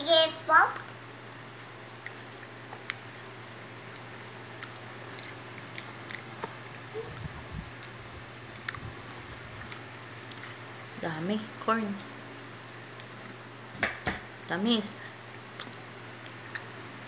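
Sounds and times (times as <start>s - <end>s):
steady low hum: 0.0s - 17.0s
child chewing: 1.8s - 10.9s, 12.4s - 13.4s, 15.3s - 16.8s.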